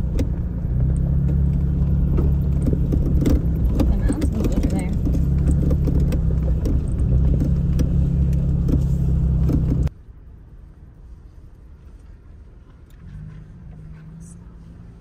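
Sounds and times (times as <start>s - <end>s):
rattles and knocks in cab: 0.0s - 9.9s
low cab hum: 0.0s - 15.0s
vehicle engine drone: 0.0s - 15.0s.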